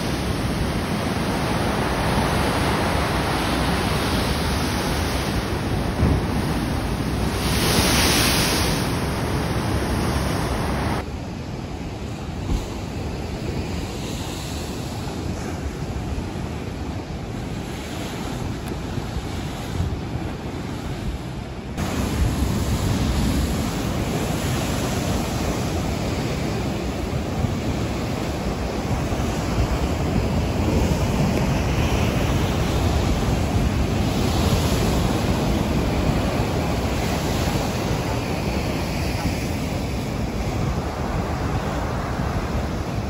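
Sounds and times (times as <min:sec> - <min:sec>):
surf crashing against a seawall: 0:00.0 - 0:11.0, 0:21.8 - 0:43.0
wind buffeting microphone: 0:00.0 - 0:43.0.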